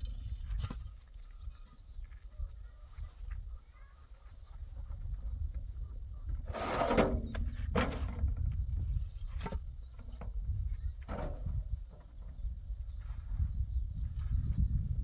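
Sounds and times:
low wind rumble: 0:04.4 - 0:15.0
concrete blocks scraping and clunking: 0:06.4 - 0:12.4.

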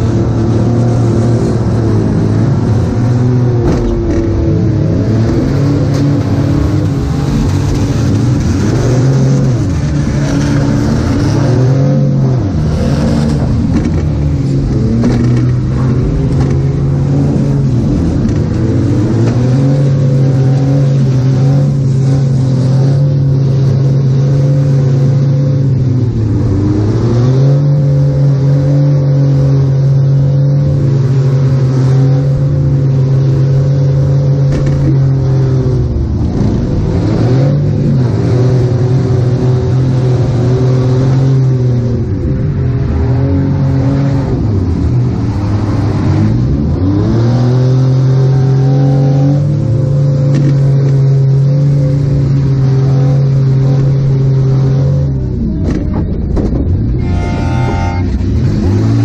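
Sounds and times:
engine revving high: 0:00.0 - 0:25.4, 0:57.0 - 0:59.0.

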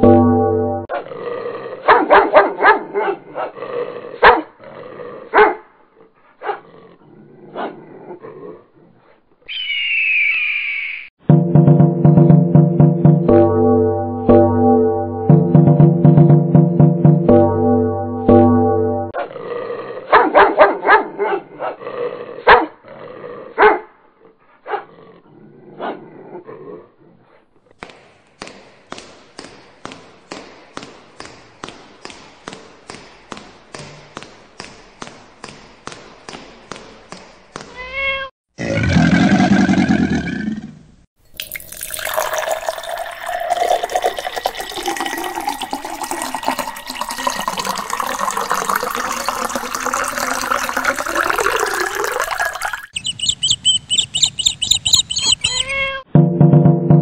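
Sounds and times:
dog barking and yipping: 0:01.8 - 0:03.6, 0:04.2 - 0:04.6, 0:05.3 - 0:05.7, 0:06.4 - 0:06.7, 0:20.1 - 0:21.8, 0:22.4 - 0:22.8, 0:23.6 - 0:23.9, 0:24.6 - 0:24.9, 0:52.9 - 0:55.8.

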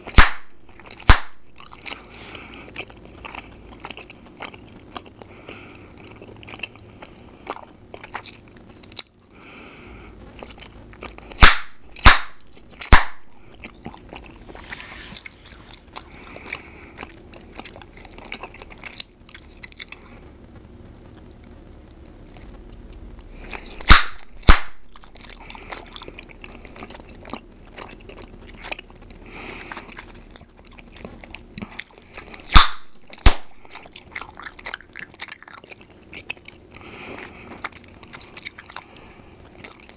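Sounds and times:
loud gum pops: 0:00.0 - 0:01.6, 0:11.3 - 0:13.4, 0:23.6 - 0:25.4, 0:32.4 - 0:34.0
gum chewing with wet clicks: 0:00.0 - 0:14.4, 0:15.2 - 0:20.2, 0:23.2 - 0:39.9.

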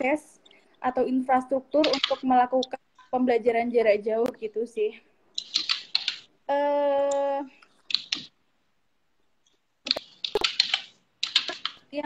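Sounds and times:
woman's broken-up speech: 0:06.5 - 0:07.6.

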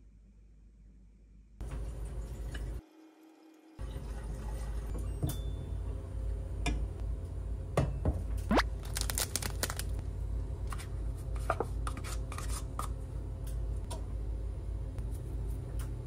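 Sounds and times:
plastic packet crinkling: 0:08.6 - 0:10.0.

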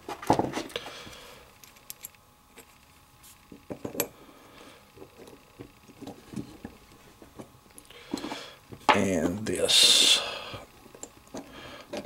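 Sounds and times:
small steel parts clicking: 0:01.6 - 0:02.8.

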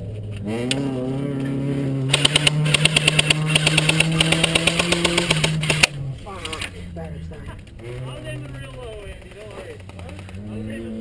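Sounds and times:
airsoft gun firing full auto: 0:02.1 - 0:05.9.

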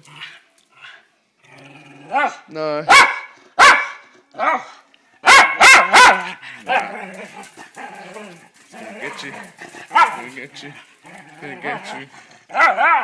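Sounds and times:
small dog barking: 0:02.1 - 0:06.9, 0:09.9 - 0:10.2, 0:12.5 - 0:13.0.

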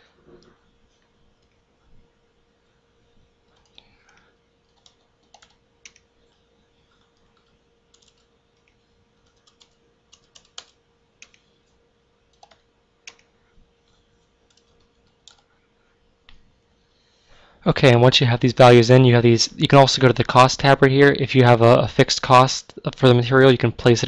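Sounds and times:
faint steady hum: 0:00.0 - 0:24.0
typing on computer keyboard: 0:03.5 - 0:06.1, 0:06.9 - 0:11.5, 0:12.3 - 0:13.3, 0:14.4 - 0:15.5.

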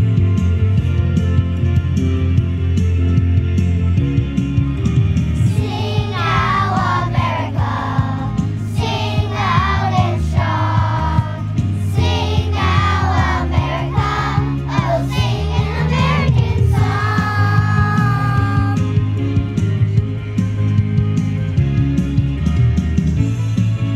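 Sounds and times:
live band playing: 0:16.0 - 0:20.6.

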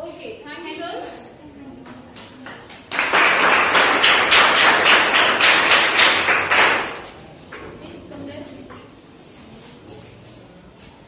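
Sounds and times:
audience clapping: 0:02.5 - 0:07.2.

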